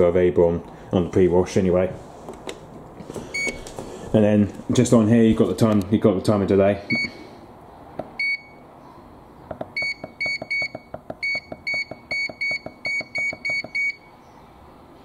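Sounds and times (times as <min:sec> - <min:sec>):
dishwasher control panel beeping: 0:03.4 - 0:03.6, 0:09.8 - 0:14.0.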